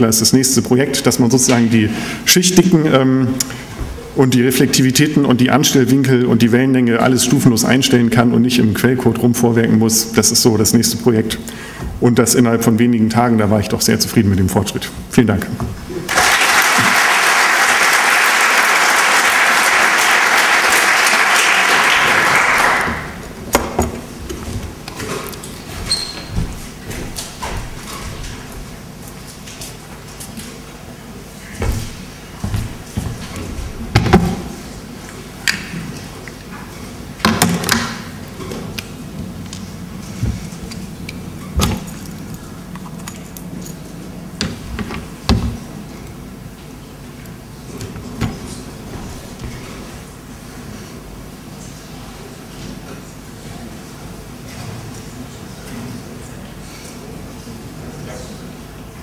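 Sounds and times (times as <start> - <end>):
audience applauding: 16.0 - 23.2
steady low hum: 23.0 - 37.3
loud thumps: 31.6 - 33.2.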